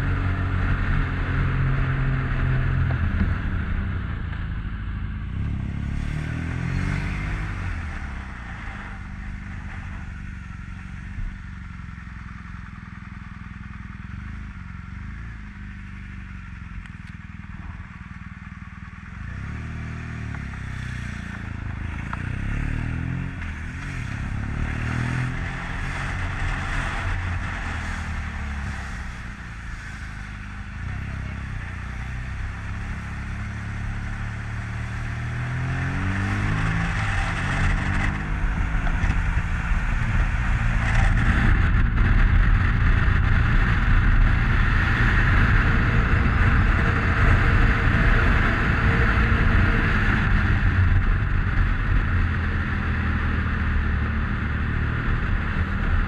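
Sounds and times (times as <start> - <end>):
motorcycle engine: 0.0 - 56.0
wind noise: 35.3 - 56.0.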